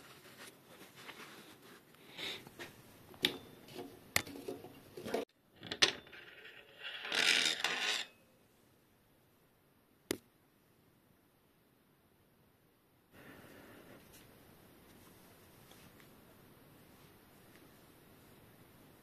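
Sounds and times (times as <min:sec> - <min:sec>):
metal scraping: 0:05.9 - 0:08.2.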